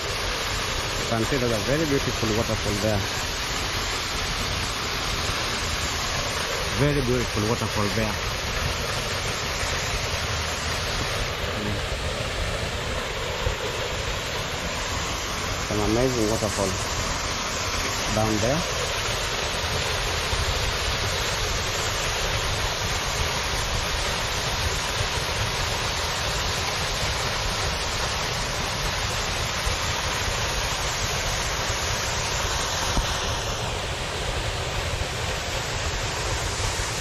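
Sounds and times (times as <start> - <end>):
waterfall rushing: 0.0 - 37.0.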